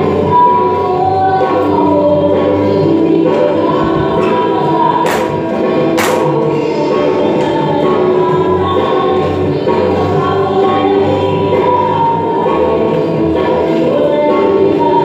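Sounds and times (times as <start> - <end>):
group singing over a band: 0.0 - 15.0.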